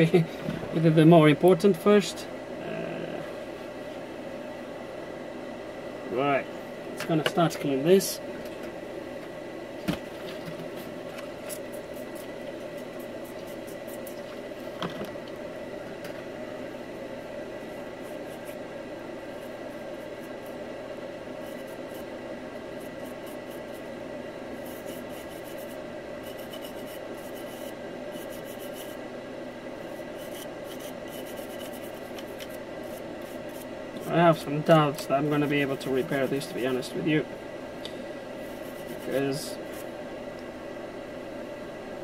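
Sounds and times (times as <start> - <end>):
steady background hum: 0.0 - 42.0
brush scrubbing circuit board: 10.8 - 14.3, 17.7 - 18.6, 19.2 - 20.6, 21.4 - 22.1, 22.7 - 23.9, 24.6 - 29.0, 29.8 - 34.5, 35.3 - 36.8, 38.4 - 39.9.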